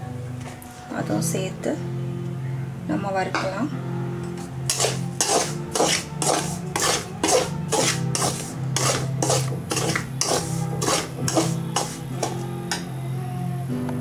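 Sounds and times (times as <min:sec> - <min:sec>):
spatula scraping flour in metal pan: 0:04.7 - 0:12.4.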